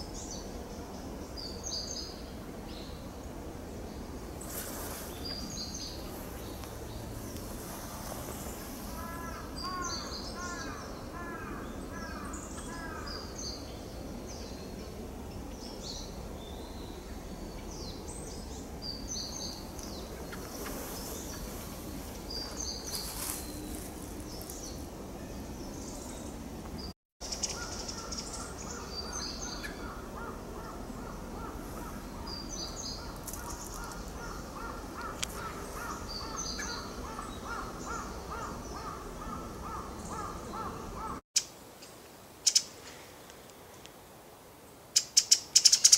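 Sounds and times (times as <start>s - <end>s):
outdoor background noise: 0.0s - 45.9s.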